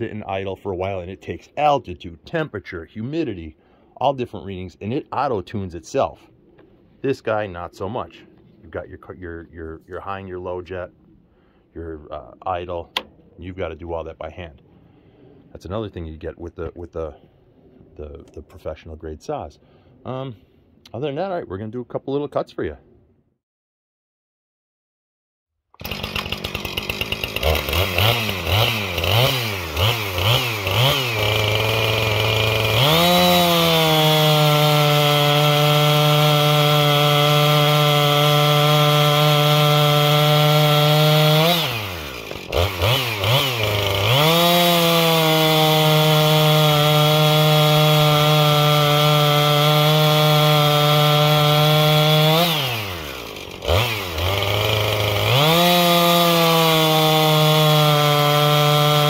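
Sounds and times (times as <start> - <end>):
chainsaw revving and cutting log: 25.8 - 59.0.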